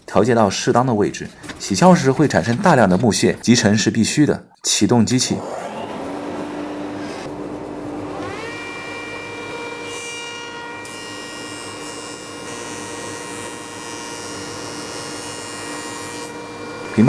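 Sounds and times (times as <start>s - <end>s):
machine whine: 5.1s - 11.6s.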